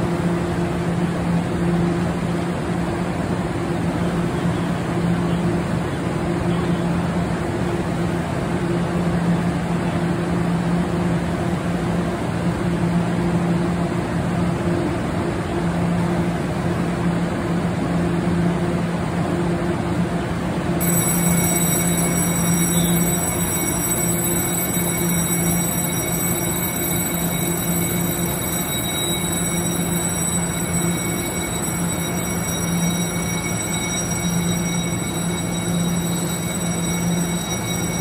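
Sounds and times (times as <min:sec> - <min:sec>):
electric train humming: 0:00.0 - 0:38.0
high steady tones: 0:20.8 - 0:38.0.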